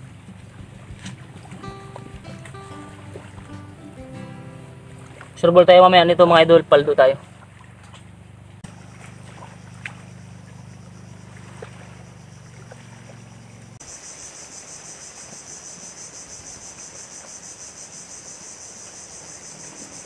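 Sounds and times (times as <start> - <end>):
insects chirping in pulsing trill: 0.0 - 20.0
low steady hum: 2.8 - 13.8.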